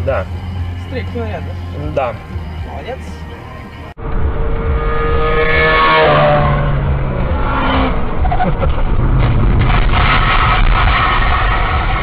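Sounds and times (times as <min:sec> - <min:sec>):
car road noise: 0:00.0 - 0:12.0
motorcycle passing at speed: 0:04.0 - 0:08.4.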